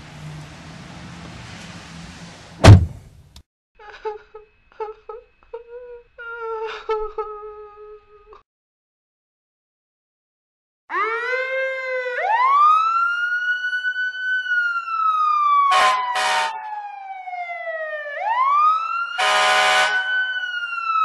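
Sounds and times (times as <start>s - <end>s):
siren wailing: 10.9s - 21.0s
vehicle horn blasts: 15.7s - 16.5s, 19.2s - 20.1s.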